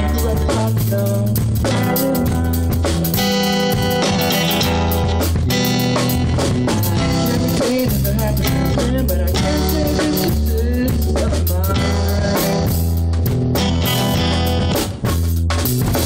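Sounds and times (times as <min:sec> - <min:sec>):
rock band music: 0:00.0 - 0:16.0.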